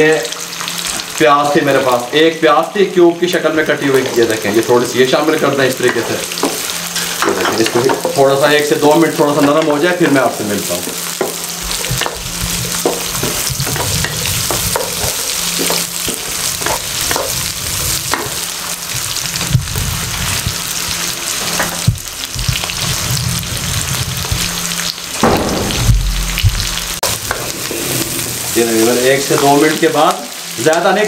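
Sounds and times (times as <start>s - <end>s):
vegetables sizzling in oil: 0.0s - 31.0s
spatula scraping and knocking pan: 11.1s - 17.5s, 18.1s - 18.4s.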